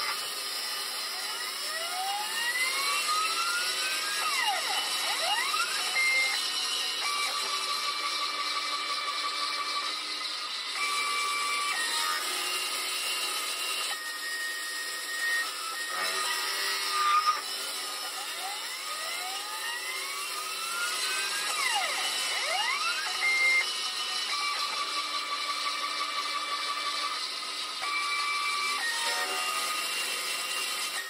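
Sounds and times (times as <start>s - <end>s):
cutter shaving wood: 0.0s - 31.0s
lathe spindle running: 0.0s - 31.0s
whining tones changing pitch: 13.8s - 31.0s.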